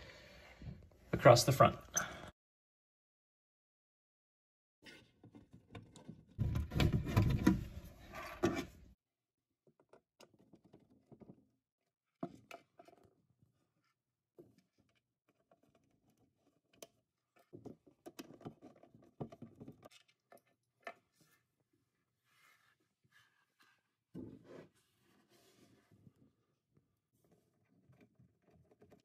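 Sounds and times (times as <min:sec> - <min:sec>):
rubbing and knocking in cabinet: 0:05.0 - 0:09.0.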